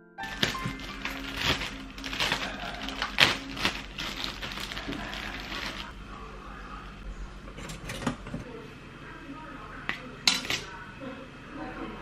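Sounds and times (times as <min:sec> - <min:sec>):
plastic bag rustling: 0:00.2 - 0:06.0.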